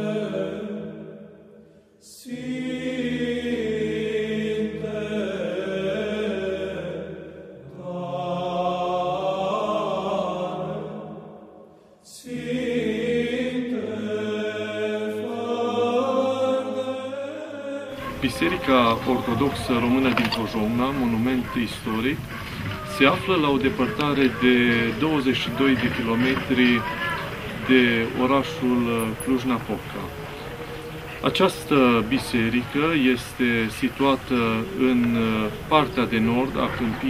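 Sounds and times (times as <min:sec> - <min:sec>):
choir chanting: 0:00.0 - 0:37.0
low held drone: 0:18.0 - 0:37.0.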